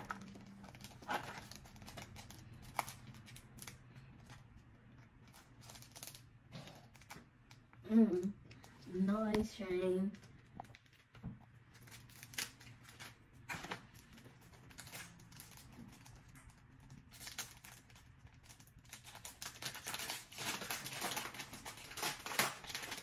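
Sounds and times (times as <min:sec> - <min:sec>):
packaging tearing and crinkling: 0:00.0 - 0:04.4, 0:05.2 - 0:07.2, 0:11.8 - 0:23.0.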